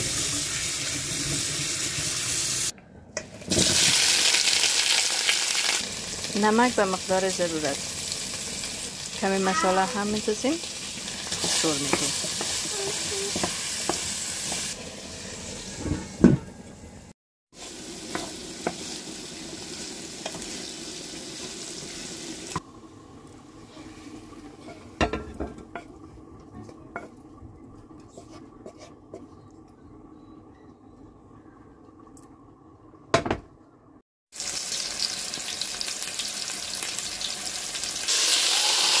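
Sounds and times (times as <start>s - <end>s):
vegetables sizzling in a pan: 0.0s - 2.7s, 3.4s - 26.2s, 34.4s - 39.0s
wooden spatula scraping a pan: 28.0s - 29.4s.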